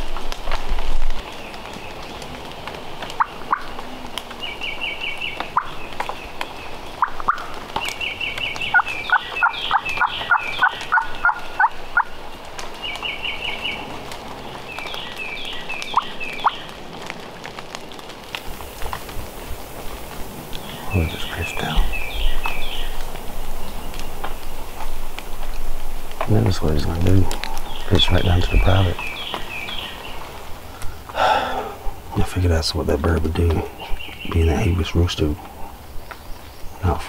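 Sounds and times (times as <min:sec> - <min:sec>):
wild turkeys gobbling: 0:03.0 - 0:04.1, 0:05.3 - 0:05.8, 0:06.9 - 0:12.2, 0:26.0 - 0:35.8
low turkey calls: 0:03.0 - 0:12.2, 0:18.5 - 0:37.0.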